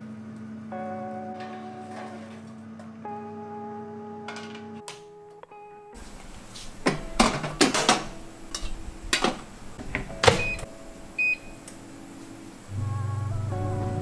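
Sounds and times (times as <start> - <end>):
guitar music: 0.6 - 9.1, 10.6 - 14.0
metal tongs clacking: 7.2 - 9.3.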